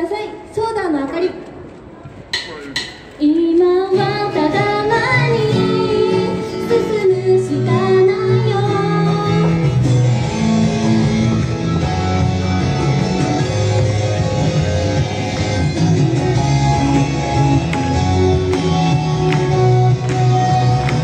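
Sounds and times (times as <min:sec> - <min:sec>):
pop song with female singing: 0:03.2 - 0:09.9.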